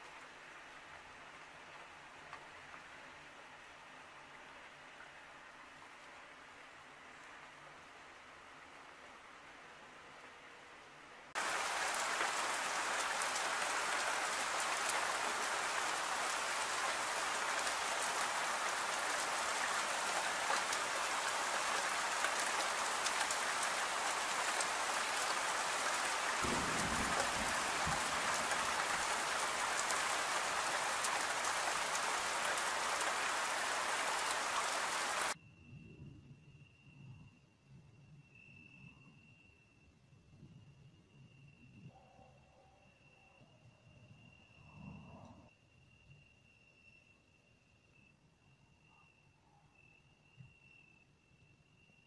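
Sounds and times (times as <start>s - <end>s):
heavy rain on trees: 0.0s - 10.4s, 11.3s - 35.4s.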